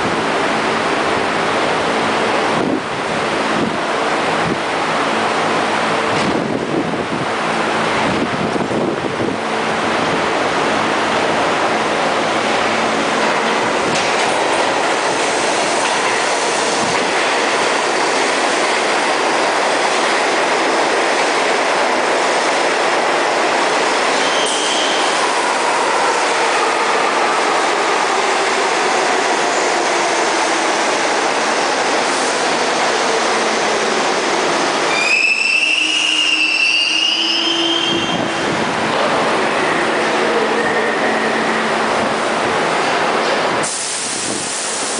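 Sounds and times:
subway train wheels on rails: 0.0 - 44.9
high wavering wheel squeal: 24.2 - 25.2, 34.9 - 38.4.

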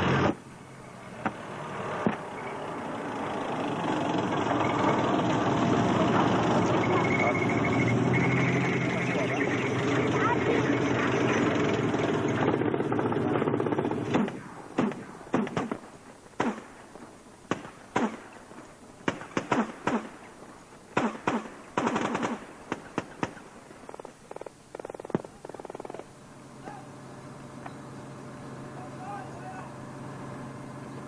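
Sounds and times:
vehicle engine running: 0.0 - 17.4, 24.1 - 31.0
gunfire with echo: 16.4 - 16.8, 17.5 - 18.4, 19.0 - 20.2, 21.0 - 23.4.

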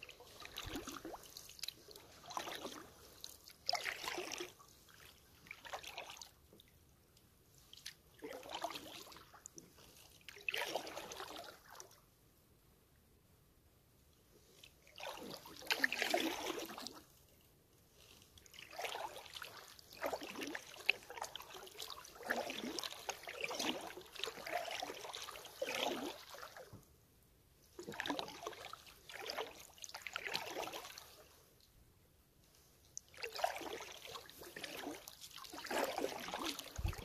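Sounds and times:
paddle splashing in water: 0.0 - 6.4, 7.7 - 11.9, 14.8 - 17.0, 18.5 - 26.8, 27.8 - 31.3, 33.0 - 37.0.

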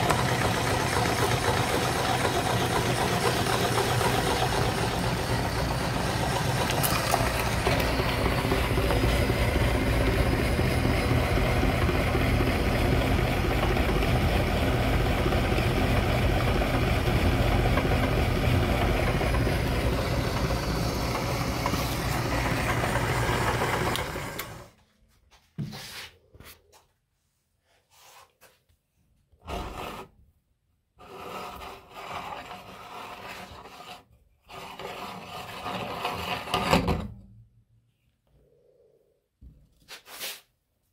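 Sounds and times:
meat grinder motor humming: 0.0 - 24.8
hand scraping grinder plate: 17.6 - 24.6, 31.0 - 37.0.

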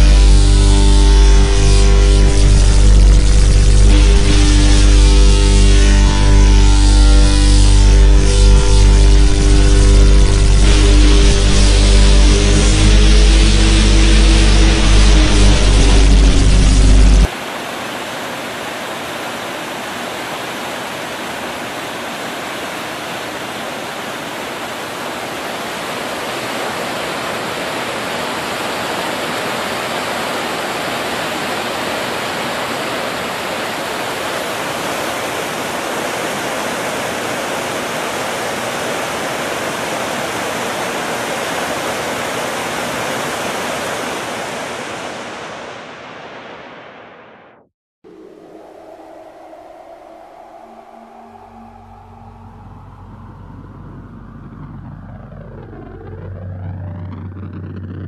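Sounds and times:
river whitewater rushing: 8.7 - 46.7.

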